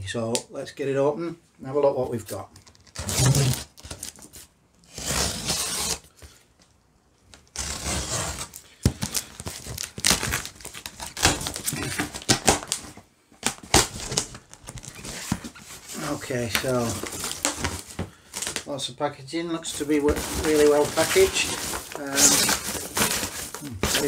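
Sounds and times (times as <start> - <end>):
paper packing rustling: 2.5 - 4.5, 7.5 - 18.7, 19.6 - 24.0
packing tape ripping: 2.6 - 6.0, 7.4 - 15.6, 16.5 - 18.6, 19.8 - 24.0.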